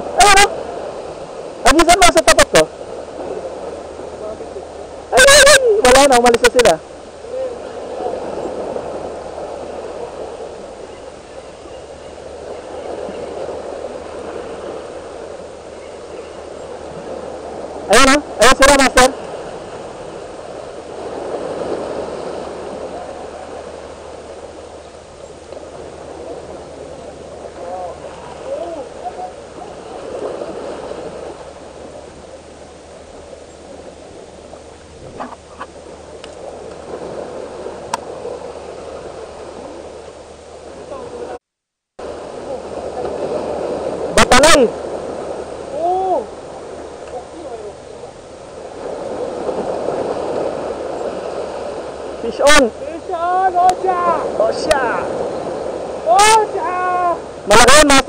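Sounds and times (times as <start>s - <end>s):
sea waves splashing over rocks: 0.0s - 41.4s, 42.0s - 58.0s
sea water splashing on rocks: 27.5s - 31.7s.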